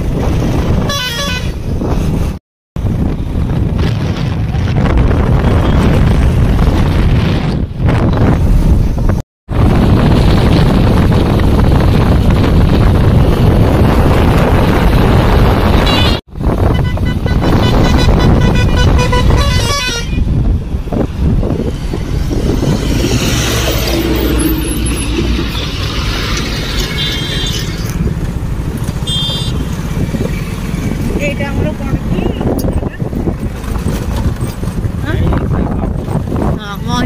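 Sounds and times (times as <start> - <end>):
road traffic: 0.0 - 37.0
wind rushing over microphone: 0.0 - 37.0
vehicle horns honking: 0.8 - 1.6, 15.8 - 20.4, 26.8 - 27.8, 29.0 - 29.7.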